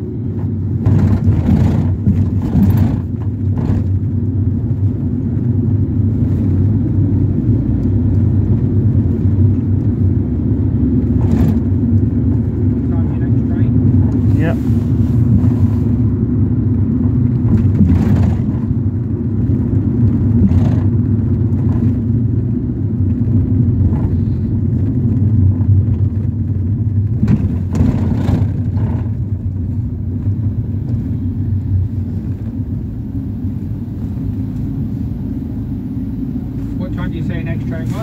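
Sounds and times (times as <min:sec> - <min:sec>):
engine and road rumble: 0:00.0 - 0:38.0
knocks and rattles: 0:00.4 - 0:04.1, 0:17.4 - 0:18.8, 0:27.0 - 0:29.4.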